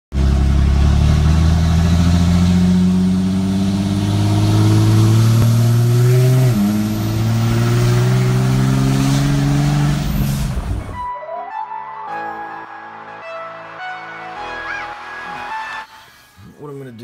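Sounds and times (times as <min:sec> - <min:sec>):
pickup truck engine accelerating: 0:00.1 - 0:11.0.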